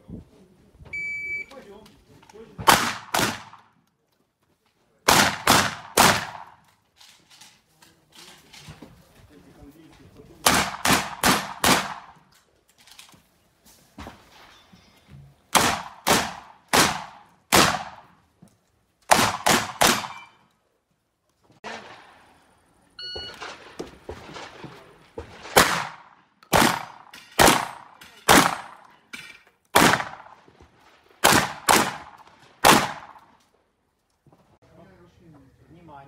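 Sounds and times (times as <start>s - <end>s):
shot timer beep: 1.0s - 1.5s, 23.0s - 23.4s
shotgun shots: 2.6s - 3.7s, 5.1s - 6.6s, 10.4s - 12.2s, 15.5s - 18.1s, 19.1s - 20.3s, 23.3s - 28.9s, 29.7s - 30.5s, 31.2s - 33.3s.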